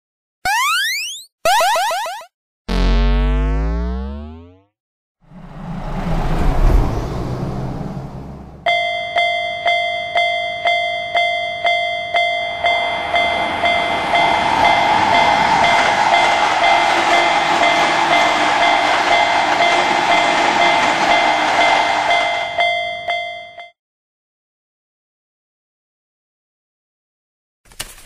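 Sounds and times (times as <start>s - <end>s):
train rumbling past: 5.2s - 8.9s, 12.0s - 23.5s
level crossing bell ringing: 8.7s - 14.8s.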